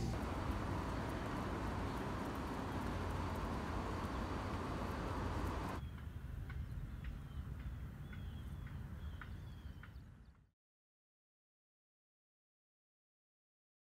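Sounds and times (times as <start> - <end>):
low outdoor rumble: 0.0 - 5.8
street traffic noise: 0.0 - 6.7
bird chirping: 0.0 - 10.4.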